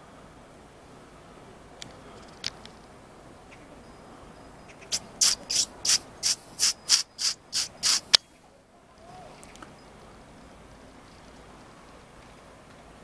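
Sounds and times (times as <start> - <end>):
scratchy rustling strokes: 4.7 - 8.2.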